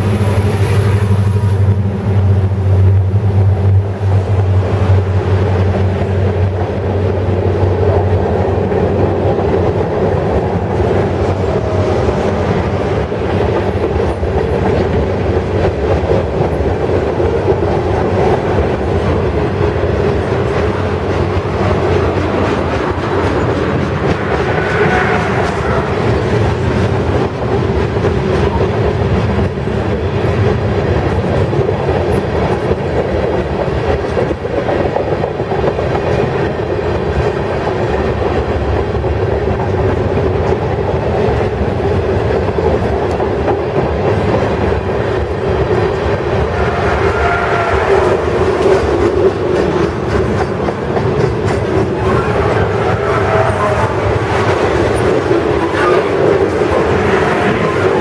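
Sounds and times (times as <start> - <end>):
train wheels rumbling on rails: 0.0 - 58.0
high-pitched wheel squeal: 24.4 - 26.0, 46.5 - 48.2, 52.0 - 54.1.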